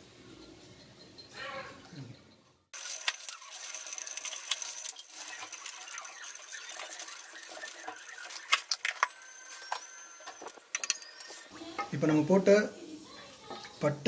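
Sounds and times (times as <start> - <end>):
spices crackling in hot oil: 2.7 - 12.2.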